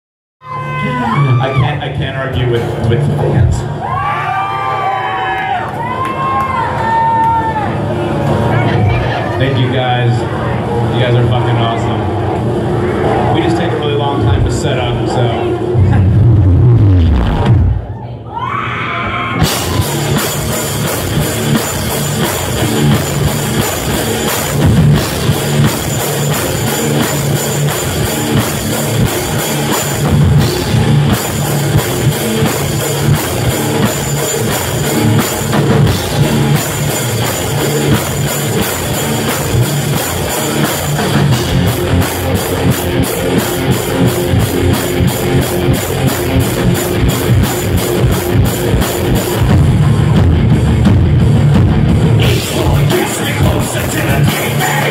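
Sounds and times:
bass guitar: 0.4s - 4.9s, 7.4s - 54.9s
drum kit: 0.4s - 5.0s, 15.6s - 17.9s, 19.3s - 54.9s
electric guitars: 18.8s - 54.9s.

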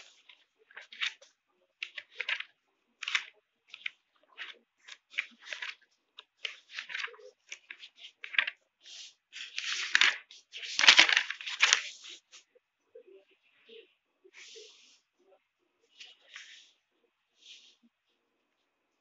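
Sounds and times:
book pages flipping: 0.0s - 12.5s, 15.9s - 16.8s.

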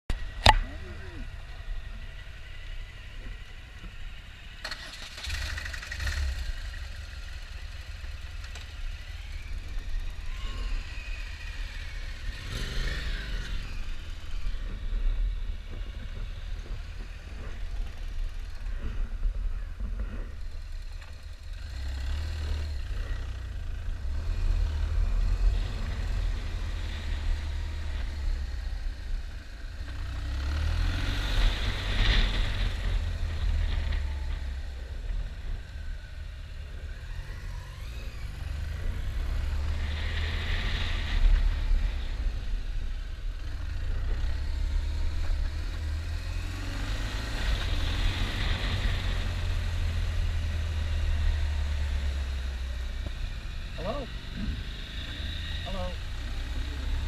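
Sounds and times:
motorcycle engine running: 0.1s - 57.0s.

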